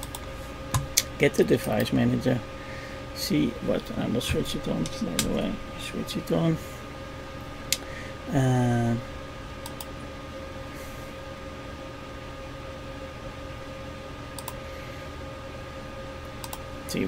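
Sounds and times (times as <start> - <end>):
computer mouse clicks: 0.0 - 0.3, 9.6 - 9.9, 14.4 - 14.6, 16.4 - 16.6
steady electrical hum: 0.0 - 17.0.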